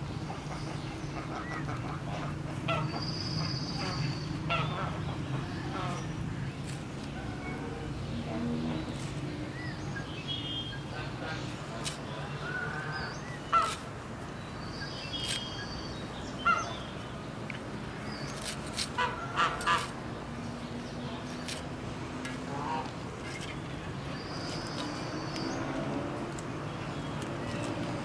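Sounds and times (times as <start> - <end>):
outdoor background noise: 0.0 - 28.0
fowl calling: 13.5 - 13.8.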